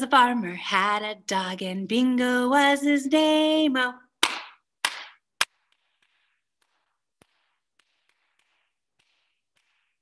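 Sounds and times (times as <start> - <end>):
hands clapping: 4.2 - 5.5.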